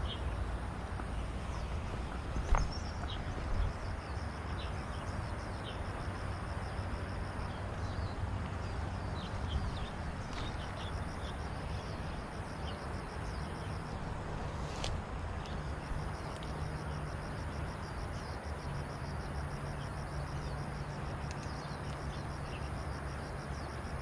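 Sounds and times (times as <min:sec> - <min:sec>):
steady low rumble: 0:00.0 - 0:18.8.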